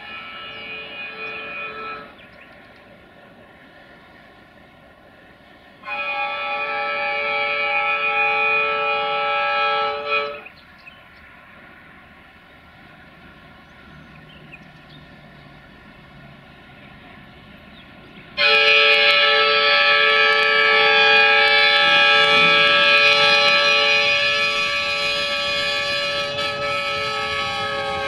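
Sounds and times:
locomotive horn blast: 0.0s - 2.2s, 5.8s - 10.6s, 18.3s - 28.0s
train running: 0.0s - 28.0s.

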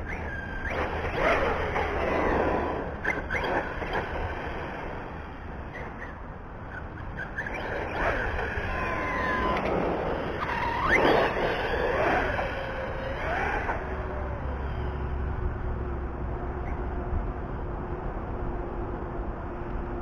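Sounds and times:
rc car electric motor whining: 0.0s - 15.2s.

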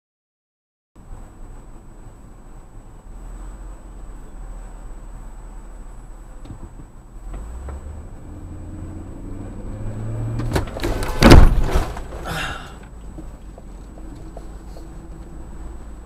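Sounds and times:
car engine pulling away: 3.3s - 16.0s
car crash: 10.2s - 12.8s.

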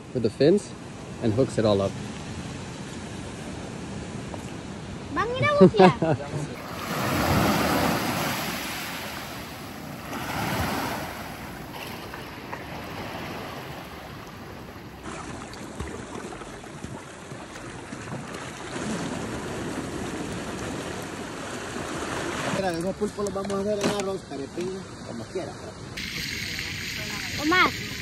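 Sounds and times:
surf breaking on beach: 6.6s - 15.9s.

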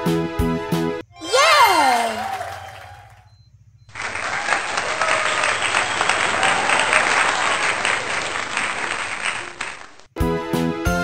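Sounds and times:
crowd clapping: 1.2s - 3.2s, 3.9s - 10.1s.

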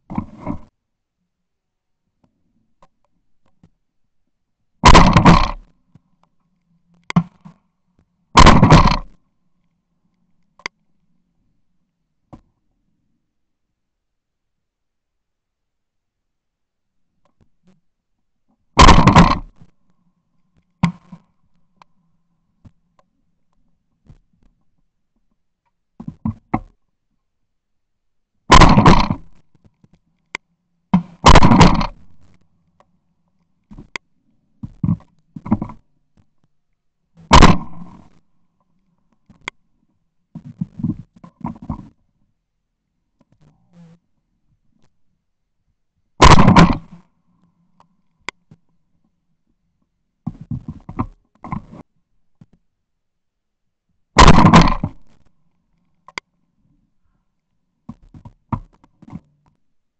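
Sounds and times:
shotgun firing: 4.8s - 5.6s, 8.4s - 9.0s, 18.8s - 19.5s, 28.5s - 29.3s, 31.2s - 32.0s, 37.3s - 37.9s, 46.2s - 46.9s, 54.2s - 54.9s
faint sharp cracks: 18.8s - 21.9s, 28.5s - 34.1s, 37.2s - 39.6s, 46.2s - 48.6s, 54.2s - 56.3s.

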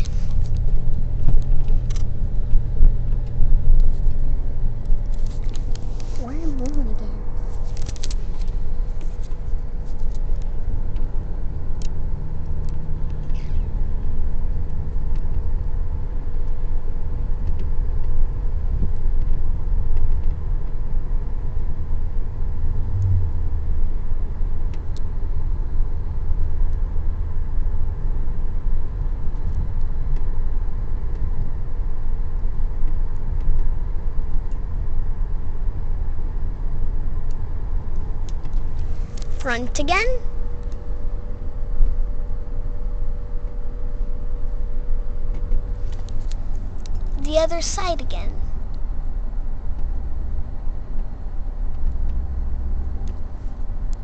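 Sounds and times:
road and engine rumble: 0.0s - 54.0s.

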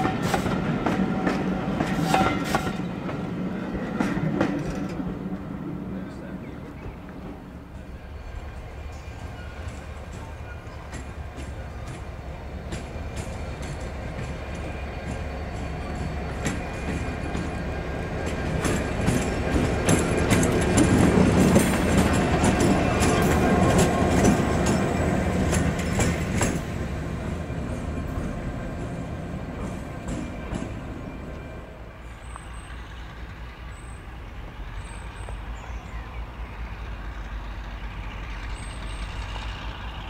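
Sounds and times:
diesel locomotive passing by: 0.0s - 40.0s
wheels clicking over rail joints: 4.0s - 5.5s, 8.9s - 31.5s.

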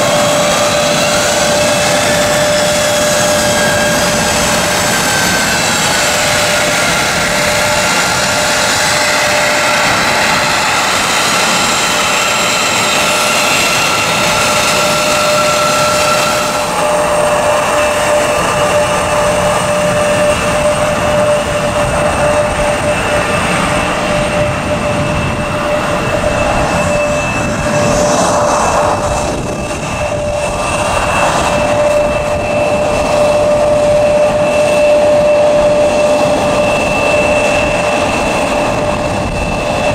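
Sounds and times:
jet engines whining at taxi power: 0.0s - 39.9s.

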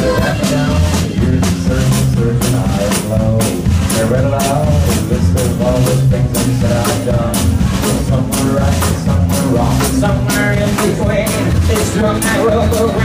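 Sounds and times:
country-rock band playing: 0.0s - 13.0s
drum kit beat: 0.0s - 13.0s.

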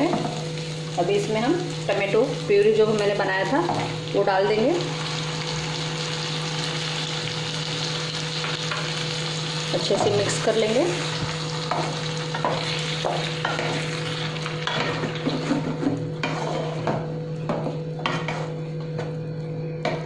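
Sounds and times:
puree frying with a sizzle: 0.0s - 20.0s
spatula scraping pan: 14.7s - 16.9s.

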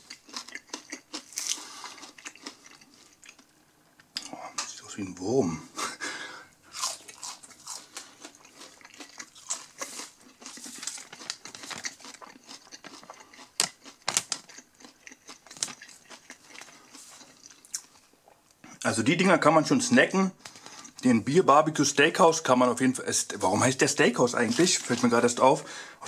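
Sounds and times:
person chewing crunchy food: 0.0s - 4.4s, 6.6s - 18.4s.

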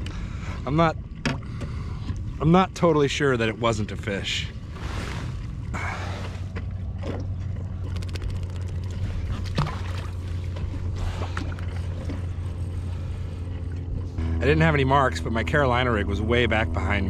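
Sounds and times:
steady low rumble: 0.0s - 17.0s
fishing rod and reel clicks: 7.8s - 9.0s.

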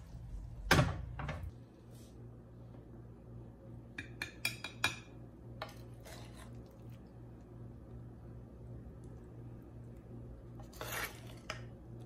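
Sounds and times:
low steady hum: 0.0s - 12.0s
metal spoon clinking and scraping: 10.6s - 11.7s.

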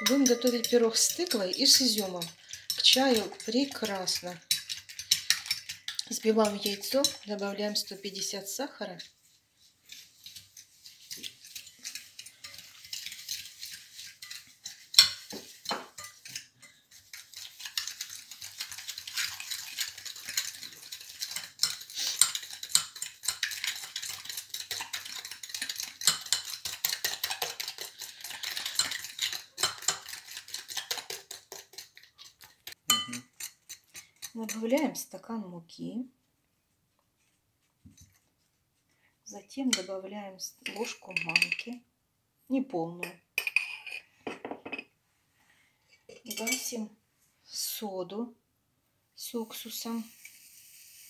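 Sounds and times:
fork beating eggs in a bowl: 0.0s - 35.1s, 39.7s - 39.9s, 40.6s - 41.6s.

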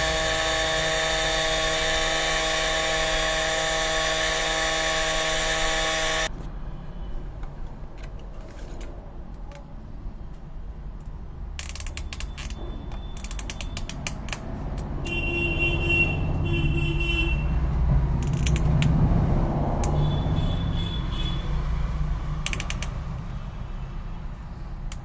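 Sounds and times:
spectacle frame clicking and creaking: 11.5s - 14.9s, 18.2s - 19.0s, 22.4s - 23.0s
lens edge squeaking in groove: 11.6s - 14.3s.

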